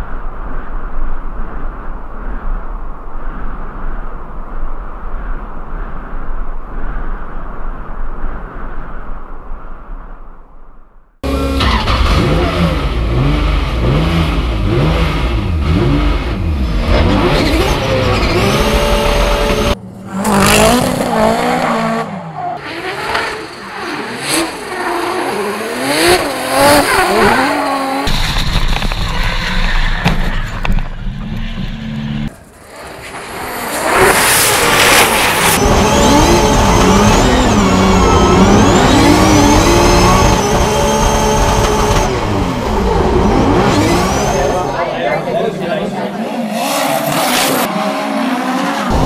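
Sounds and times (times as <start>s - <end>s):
car engines revving hard: 11.2s - 28.9s, 31.8s - 49.0s.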